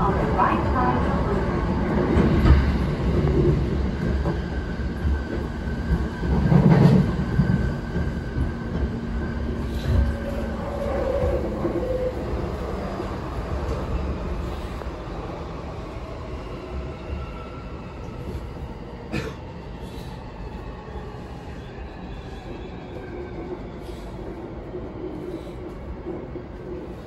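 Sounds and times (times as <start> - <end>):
train wheels rumbling on rail: 0.0 - 27.0.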